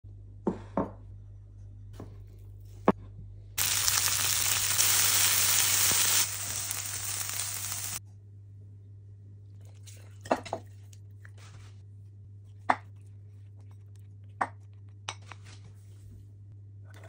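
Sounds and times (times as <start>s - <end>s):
meat sizzling in a frying pan: 3.6s - 8.0s.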